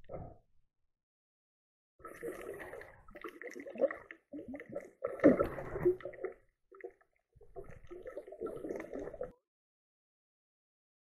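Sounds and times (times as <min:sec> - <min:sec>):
underwater bubbling and gurgling: 0:02.0 - 0:09.4.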